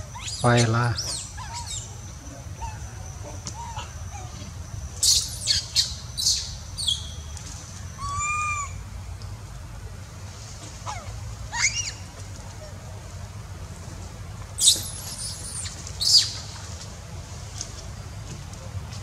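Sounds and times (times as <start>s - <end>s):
young monkeys screaming: 0.0s - 6.9s, 7.9s - 8.8s, 10.8s - 12.1s
monkey arched call: 0.1s - 4.4s, 7.9s - 8.8s, 10.8s - 12.0s, 14.6s - 16.4s.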